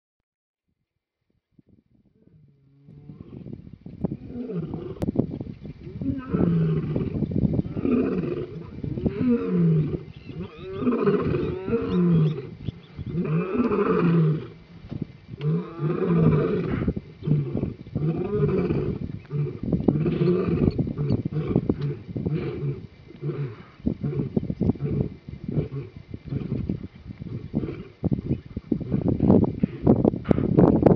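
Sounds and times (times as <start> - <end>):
lions roaring: 4.2 - 5.0, 5.9 - 14.6, 15.4 - 26.7.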